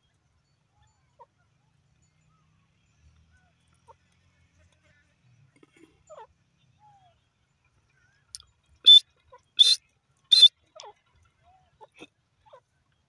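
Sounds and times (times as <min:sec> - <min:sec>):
faint soft chirps: 0:00.0 - 0:13.0
harsh bird calls: 0:08.9 - 0:10.5.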